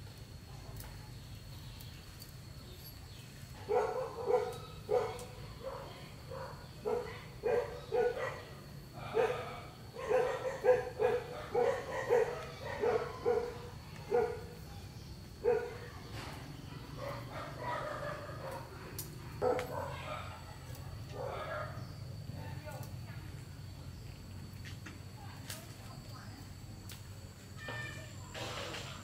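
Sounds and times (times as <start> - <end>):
dog barking: 3.6 - 14.6, 15.4 - 16.0, 16.9 - 22.5.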